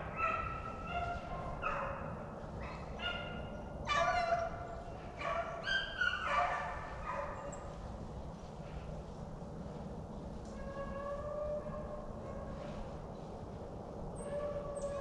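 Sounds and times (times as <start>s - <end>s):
hounds baying: 0.0s - 4.5s, 5.2s - 7.6s.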